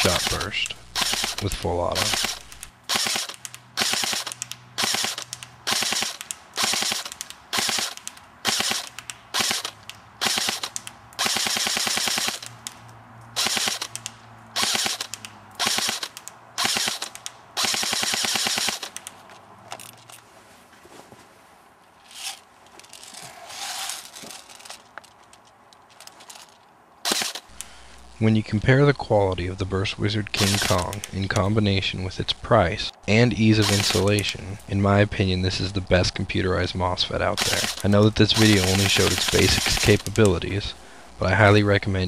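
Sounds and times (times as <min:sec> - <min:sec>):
airsoft gun firing bursts: 0:00.0 - 0:12.6, 0:13.4 - 0:19.1, 0:27.0 - 0:28.2, 0:30.3 - 0:31.4, 0:33.6 - 0:34.6, 0:37.4 - 0:40.4.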